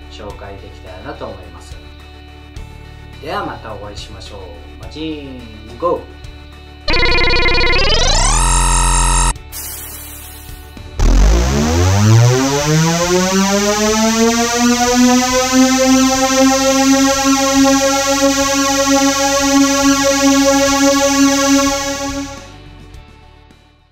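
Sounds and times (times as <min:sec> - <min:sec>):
synthesizer tone gliding up: 0:06.9 - 0:09.4, 0:11.0 - 0:22.5.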